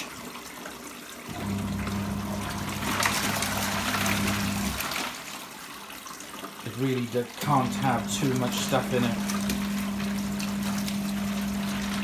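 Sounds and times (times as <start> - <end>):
water churning: 0.0 - 12.0
water running into tub: 0.0 - 12.0
washing machine motor humming: 1.3 - 5.0, 7.3 - 12.0.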